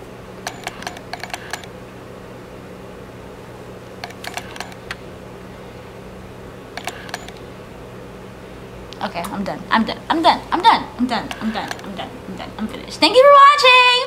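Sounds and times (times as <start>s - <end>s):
low room hum: 0.0s - 14.0s
small sharp clicks: 4.0s - 5.0s, 6.8s - 7.4s.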